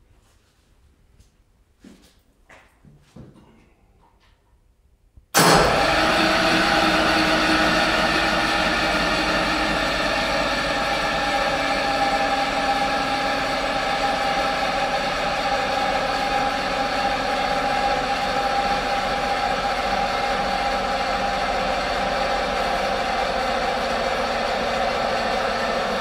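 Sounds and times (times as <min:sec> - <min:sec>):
diesel engine running with whine: 0:05.4 - 0:26.0.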